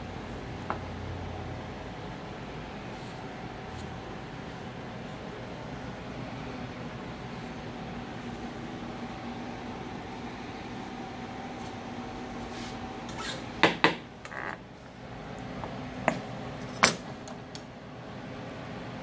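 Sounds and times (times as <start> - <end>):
steady background hum: 0.0 - 19.0.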